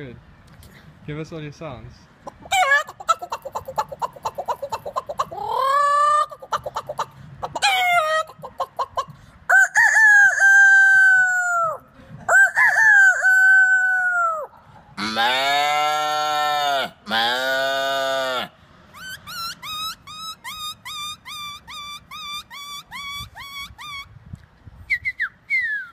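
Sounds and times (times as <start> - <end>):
man imitating chicken clucks: 2.2 - 24.1
man imitating rooster crows: 9.5 - 18.5.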